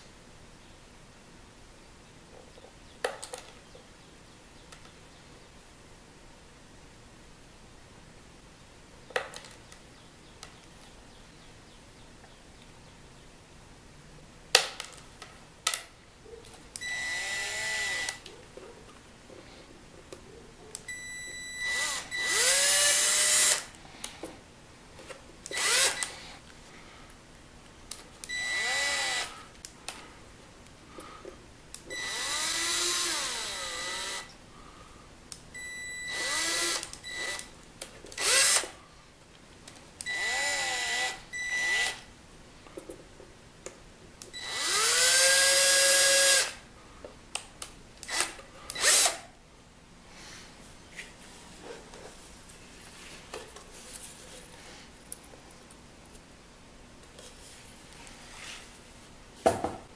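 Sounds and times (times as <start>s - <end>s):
cordless drill boring into wood: 16.9s - 18.2s, 21.6s - 23.6s, 25.5s - 26.1s, 28.3s - 29.3s, 31.9s - 34.3s, 36.1s - 37.5s, 38.2s - 38.7s, 40.1s - 42.0s, 44.4s - 46.6s, 48.1s - 49.2s.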